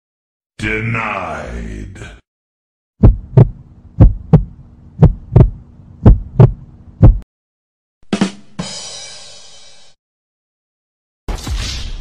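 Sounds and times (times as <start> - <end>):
faint steady hum: 3.0 - 7.2
heartbeat thumps: 3.0 - 7.2.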